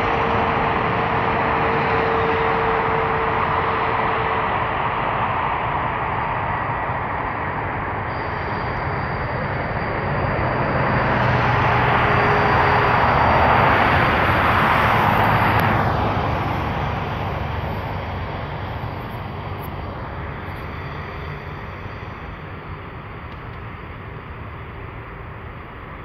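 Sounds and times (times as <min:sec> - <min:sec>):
jet engines roaring on takeoff: 0:00.0 - 0:26.0.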